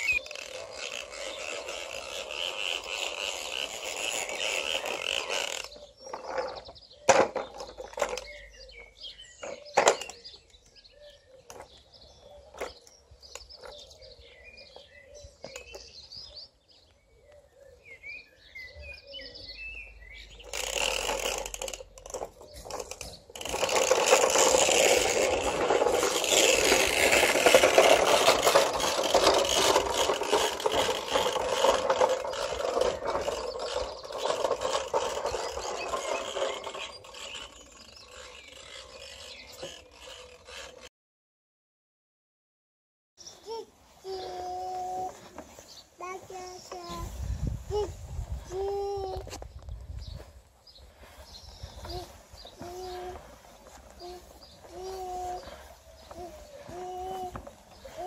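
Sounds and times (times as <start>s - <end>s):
toy lawnmower rattling on cobblestones: 0.0s - 10.7s, 20.2s - 40.9s, 52.0s - 58.0s
birds chirping faintly: 0.0s - 40.9s, 43.2s - 58.0s.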